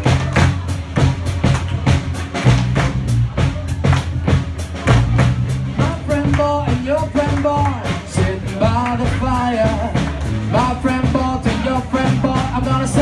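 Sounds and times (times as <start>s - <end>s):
drum kit and bass groove: 0.0s - 13.0s.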